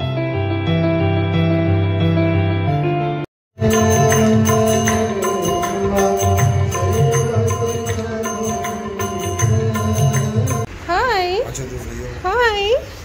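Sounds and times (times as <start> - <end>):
bright percussion strikes: 3.6 - 10.7
devotional chant music: 3.6 - 10.7.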